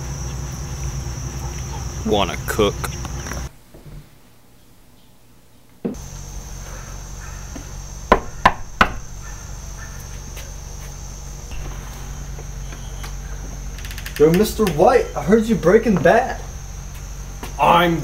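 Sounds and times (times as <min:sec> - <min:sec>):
knocking on wooden door: 0:08.1 - 0:09.0.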